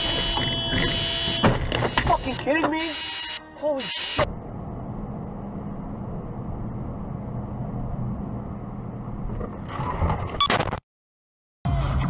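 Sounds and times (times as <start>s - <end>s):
car interior driving rumble: 4.3s - 10.4s.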